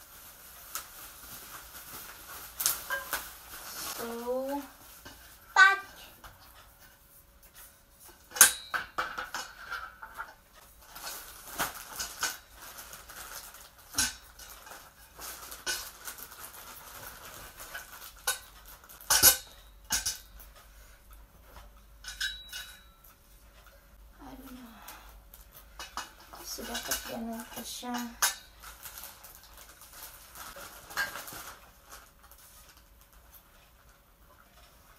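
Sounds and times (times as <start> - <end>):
metal tubes clinking together: 7.4 - 16.2, 17.6 - 23.7, 25.3 - 29.7.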